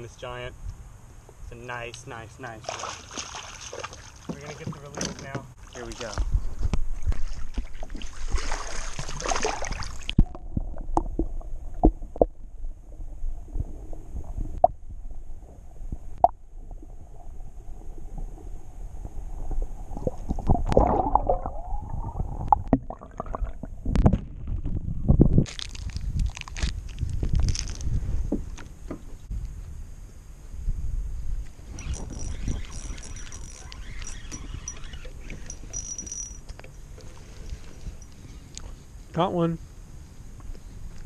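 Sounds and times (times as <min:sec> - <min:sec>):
water splashing: 0:02.6 - 0:04.9, 0:06.9 - 0:12.0, 0:19.6 - 0:23.9
underwater gurgle and knocks: 0:06.7 - 0:25.4.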